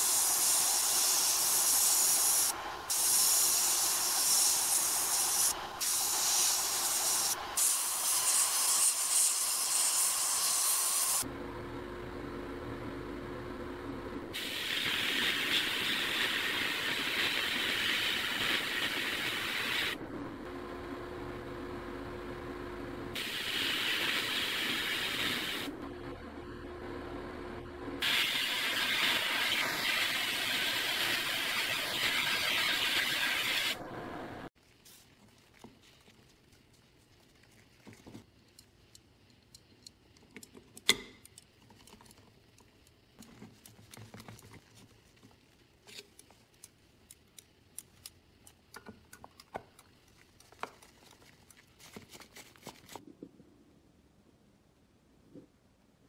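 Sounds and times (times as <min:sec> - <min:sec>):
sandblast nozzle hissing: 0:00.0 - 0:11.2, 0:23.2 - 0:25.7, 0:28.0 - 0:33.8.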